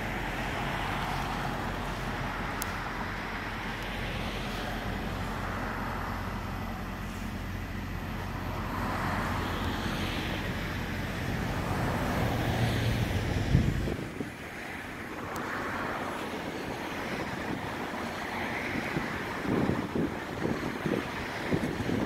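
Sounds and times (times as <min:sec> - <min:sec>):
truck engine hum: 0:00.0 - 0:22.0
wind noise on microphone: 0:10.0 - 0:22.0.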